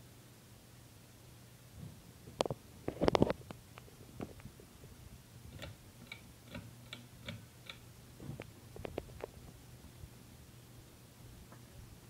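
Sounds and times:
ceiling fan motor hum: 0:00.0 - 0:12.0
fan ticking: 0:05.4 - 0:09.0
sharp clicks and knocks: 0:05.5 - 0:09.3.

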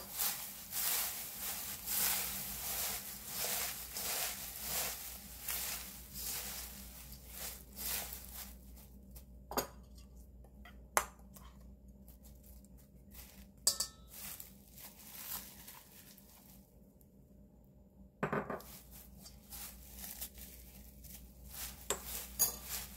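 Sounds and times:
food rustling and crunching in bowl: 0:00.0 - 0:17.0, 0:18.6 - 0:22.9
utensil clinking against dish: 0:13.7 - 0:14.2, 0:21.9 - 0:22.9.

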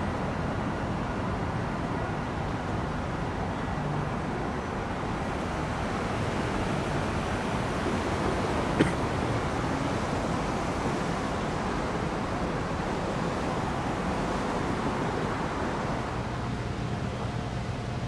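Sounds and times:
cars driving over railroad crossing: 0:04.6 - 0:11.2.

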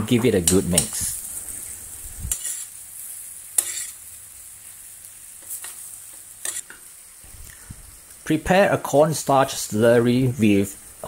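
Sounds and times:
food sizzling in a frying pan: 0:00.0 - 0:11.0
metal spoon scraping a pan: 0:00.4 - 0:02.8, 0:03.6 - 0:04.0, 0:06.4 - 0:06.8.

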